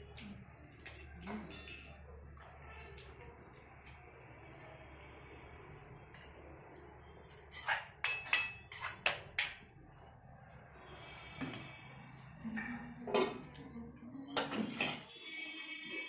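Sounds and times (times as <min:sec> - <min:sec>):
ladle clinking against steel bowl: 0:08.0 - 0:09.6.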